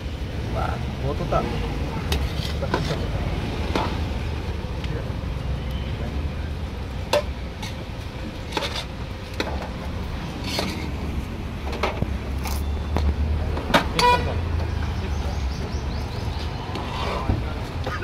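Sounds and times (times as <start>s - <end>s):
low traffic rumble: 0.0s - 18.0s
vehicle horn toot: 14.0s - 14.4s.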